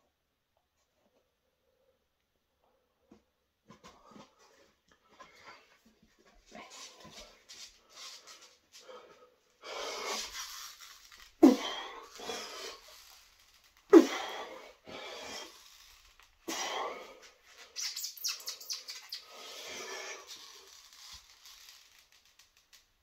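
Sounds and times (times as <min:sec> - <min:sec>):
man breathing hard: 0:08.7 - 0:10.4, 0:14.0 - 0:15.6, 0:16.5 - 0:17.6.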